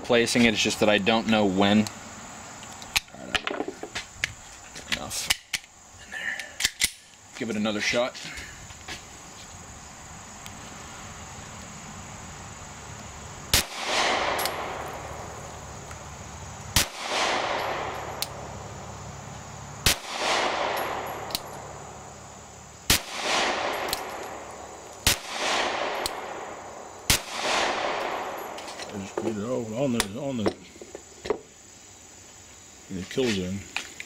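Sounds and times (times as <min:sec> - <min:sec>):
pistol shots with echo: 0:13.5 - 0:15.2, 0:16.8 - 0:18.4, 0:19.8 - 0:21.8, 0:22.9 - 0:28.6.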